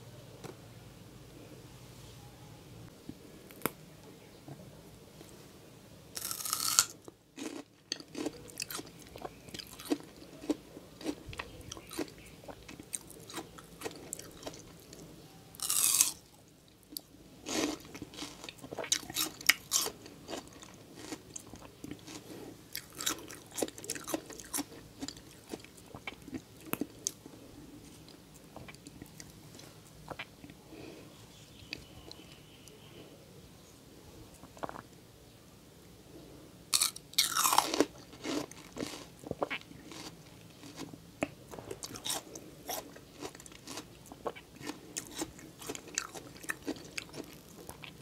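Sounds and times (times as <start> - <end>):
crunching and chewing: 6.2 - 30.9, 34.4 - 34.9, 36.7 - 48.0.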